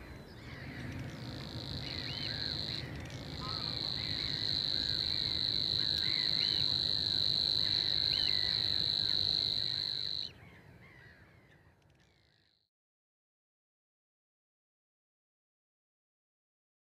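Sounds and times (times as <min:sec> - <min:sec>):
other birds calling: 0:00.0 - 0:11.6
warbler buzzing trill: 0:00.5 - 0:10.3.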